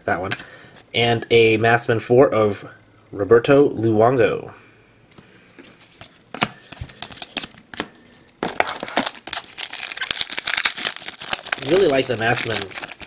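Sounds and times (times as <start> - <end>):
foil wrapper crinkling and tearing: 8.4 - 13.0.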